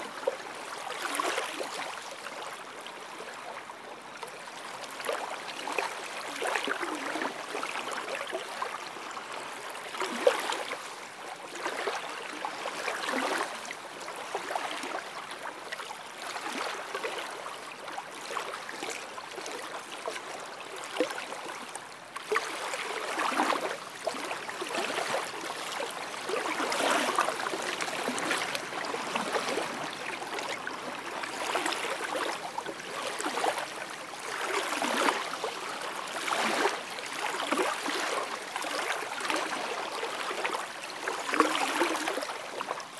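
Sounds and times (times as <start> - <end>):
waves lapping onto shore: 9.6 - 42.9.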